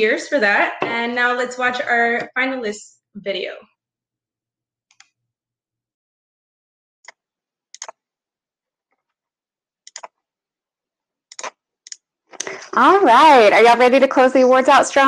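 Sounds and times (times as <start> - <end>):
sharp computer clicks: 7.1 - 8.0, 9.9 - 10.2, 11.3 - 12.0.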